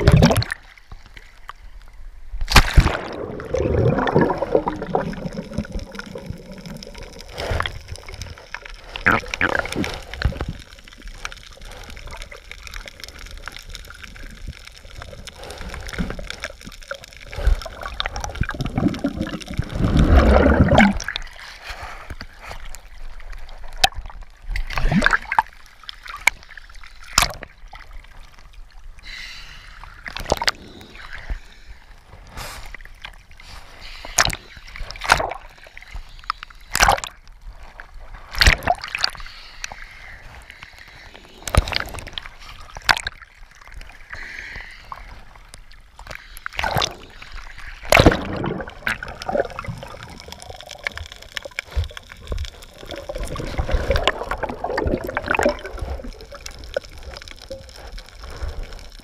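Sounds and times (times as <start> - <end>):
muffled water rush: 0.0 - 29.1, 30.0 - 59.0
sharp water slaps: 2.5 - 3.2
water sloshing against camera: 30.0 - 59.0.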